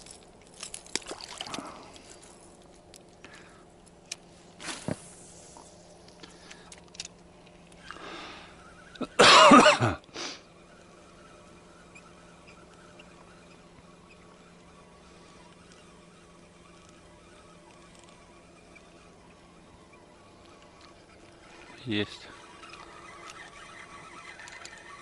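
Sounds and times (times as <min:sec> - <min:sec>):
person coughing: 0:09.0 - 0:10.0.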